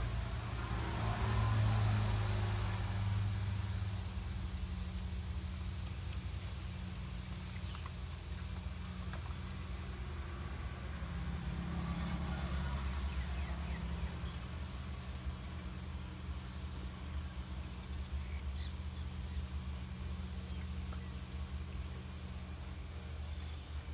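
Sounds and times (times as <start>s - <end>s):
low mechanical hum: 0.0s - 23.9s
faint small clicks: 7.5s - 9.4s.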